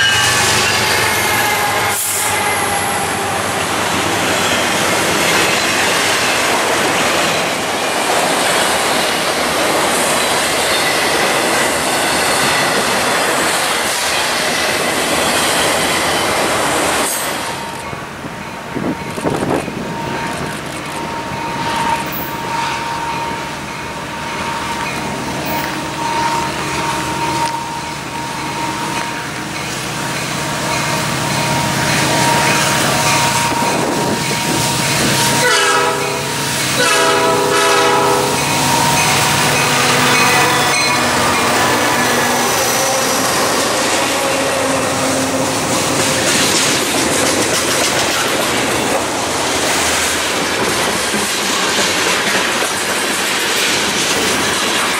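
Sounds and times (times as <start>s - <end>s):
grade crossing bell ringing: 0.0s - 3.2s, 17.5s - 36.9s, 37.6s - 44.7s
locomotive horn blasts: 0.0s - 3.4s, 25.5s - 29.4s, 30.4s - 46.3s
freight train wheel clatter: 0.0s - 54.9s.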